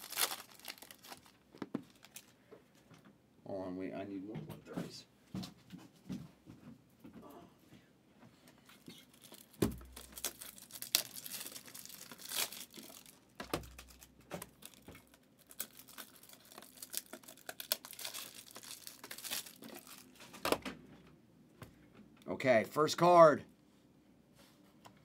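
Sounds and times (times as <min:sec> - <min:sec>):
foil wrappers tearing and crinkling: 0:00.0 - 0:02.3, 0:09.0 - 0:20.4.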